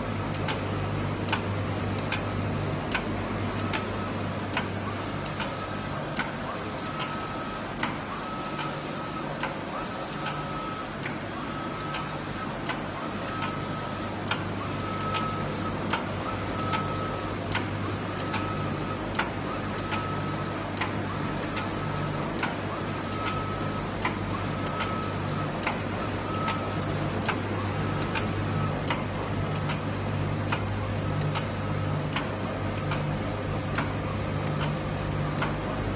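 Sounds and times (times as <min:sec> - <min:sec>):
printer humming: 0:00.0 - 0:35.9
sharp click: 0:01.3 - 0:02.3, 0:02.9 - 0:03.9, 0:04.5 - 0:05.6, 0:07.8 - 0:08.8, 0:09.4 - 0:10.4, 0:17.5 - 0:18.5, 0:25.6 - 0:26.6, 0:28.0 - 0:29.9, 0:30.5 - 0:33.1, 0:33.7 - 0:34.8.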